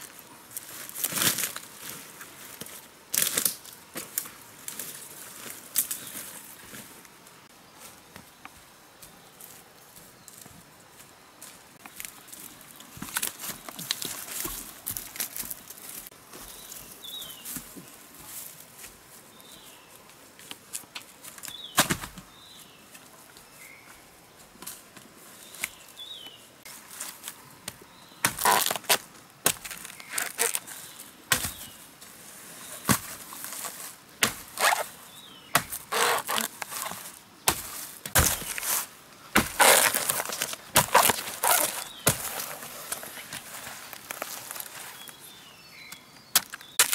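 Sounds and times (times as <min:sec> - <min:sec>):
machete chopping bamboo: 0:21.8 - 0:22.2, 0:28.2 - 0:30.6, 0:31.3 - 0:31.7, 0:34.2 - 0:34.8, 0:35.5 - 0:38.7, 0:39.4 - 0:42.3, 0:46.4 - 0:46.9.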